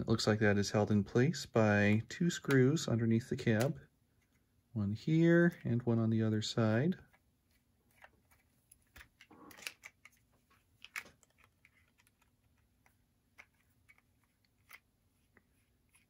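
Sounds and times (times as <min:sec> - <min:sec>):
fingers handling plastic model: 0:01.8 - 0:06.2, 0:06.9 - 0:16.0.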